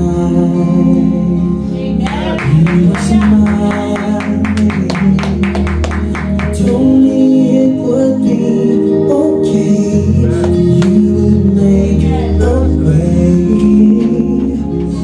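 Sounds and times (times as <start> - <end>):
worship song with singing: 0.0 - 15.0.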